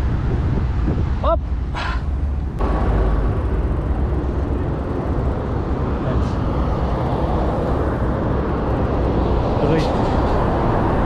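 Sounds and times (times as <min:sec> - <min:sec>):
wind on camera microphone: 0:00.0 - 0:01.7.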